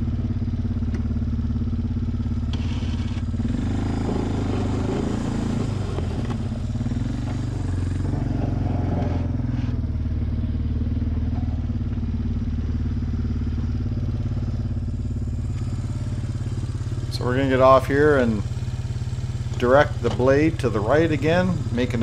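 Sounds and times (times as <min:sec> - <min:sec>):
atv engine running: 0:00.0 - 0:22.0
plow blade scraping snow: 0:02.5 - 0:09.9, 0:15.5 - 0:18.6, 0:19.2 - 0:22.0.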